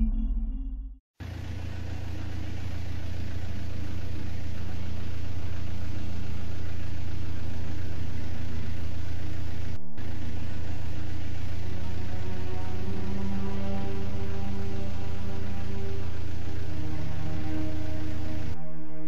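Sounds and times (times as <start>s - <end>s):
brief tone: 0.0s - 1.0s
low engine-like droning hum: 1.2s - 19.0s.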